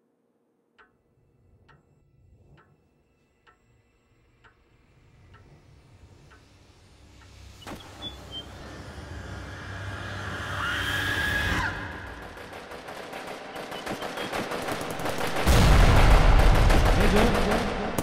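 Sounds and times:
brief whistling tone: 7.6s - 8.6s
rapid machine-gun fire: 12.1s - 18.0s
heavy low hit: 15.4s - 18.0s.

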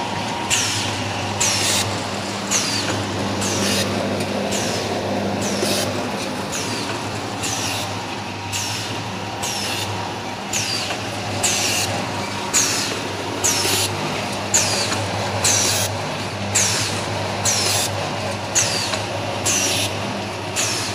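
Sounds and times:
packing machine hum: 0.0s - 20.9s
machine hiss and clack: 0.3s - 20.9s.

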